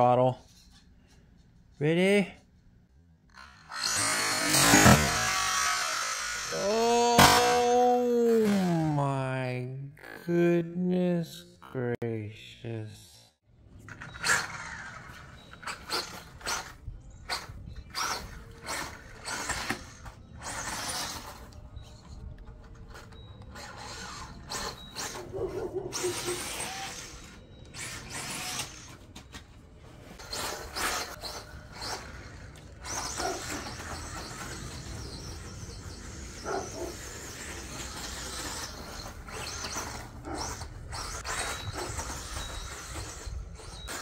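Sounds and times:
electric motor whining: 3.3s - 7.3s, 14.0s - 29.0s, 30.2s - 44.0s.

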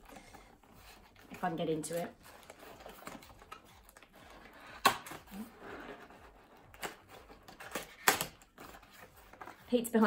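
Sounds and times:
cardboard rustling and scraping: 0.0s - 10.0s
cardboard snap: 7.6s - 8.4s.

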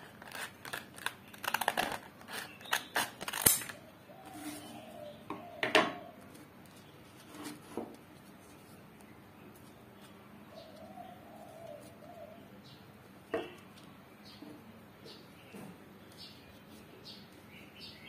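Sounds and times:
dove cooing: 3.8s - 6.3s, 10.5s - 12.5s.

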